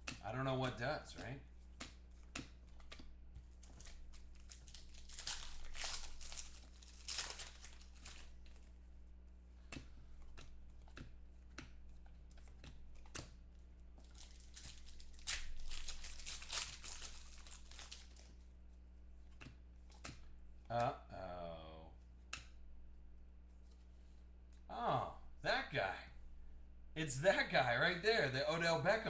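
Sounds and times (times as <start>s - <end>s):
cards ticking and tapping: 0.0s - 8.5s, 9.6s - 18.2s
faint steady hum: 0.0s - 29.0s
foil wrappers torn and crinkled: 3.6s - 8.6s, 14.0s - 18.3s.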